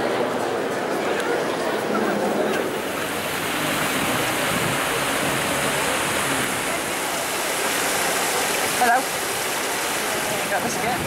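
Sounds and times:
water splashing down a wall: 2.6s - 11.0s.

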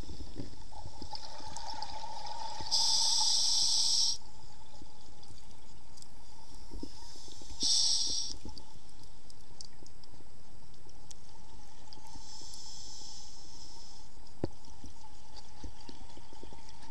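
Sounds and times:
faint underwater hum: 0.0s - 16.9s
scuba regulator breaths hissing: 2.7s - 4.2s, 7.0s - 8.4s, 12.1s - 14.1s.

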